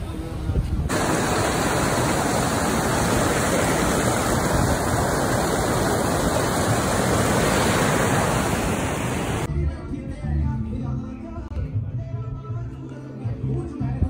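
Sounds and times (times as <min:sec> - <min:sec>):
river rushing over boulders: 0:00.9 - 0:09.5.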